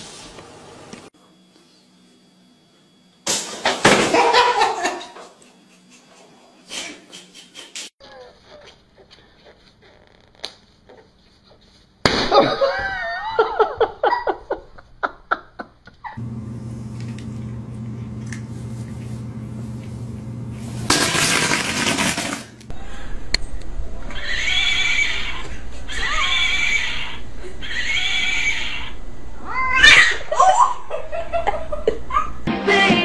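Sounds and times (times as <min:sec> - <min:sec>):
cat yowling: 0:24.1 - 0:30.6.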